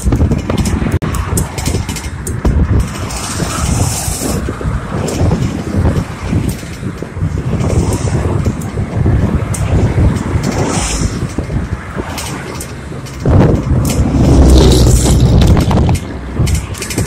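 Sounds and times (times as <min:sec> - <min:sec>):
bicycle clicks and rattles: 0:00.0 - 0:17.0
wind buffeting microphone: 0:00.0 - 0:17.0.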